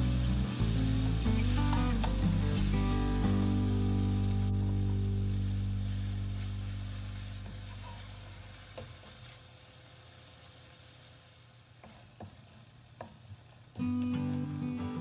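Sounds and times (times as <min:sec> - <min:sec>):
background music: 0:00.0 - 0:06.3
tomatoes sizzling in oil: 0:00.0 - 0:15.0
wooden spatula knocking on pan: 0:01.7 - 0:02.2.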